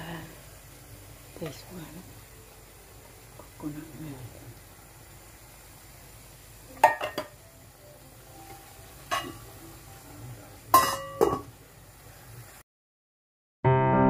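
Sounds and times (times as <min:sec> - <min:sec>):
steel lid set on pan: 0:06.8 - 0:07.3, 0:09.1 - 0:09.5, 0:10.7 - 0:11.5
steel cookware clinking: 0:06.8 - 0:07.4, 0:09.0 - 0:09.6, 0:10.7 - 0:11.6.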